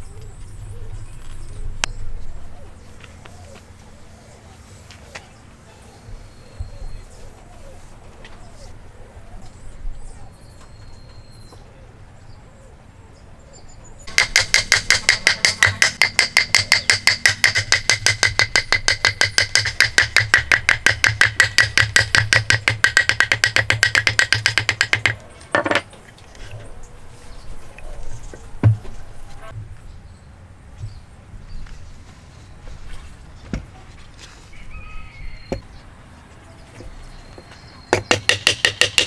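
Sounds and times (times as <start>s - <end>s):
wooden block tapping timber beam: 14.1s - 25.8s, 37.9s - 39.0s.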